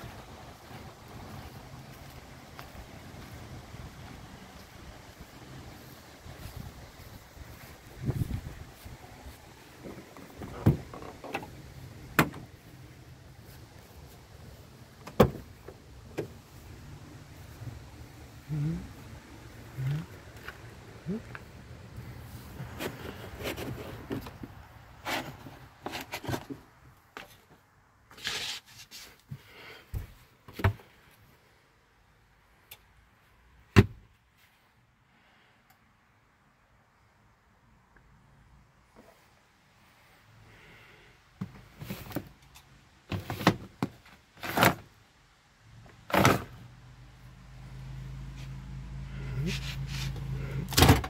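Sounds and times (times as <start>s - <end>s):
rubbing and rustling: 22.0s - 29.5s, 49.2s - 50.8s
plastic drawers sliding: 43.1s - 44.9s, 46.0s - 46.6s.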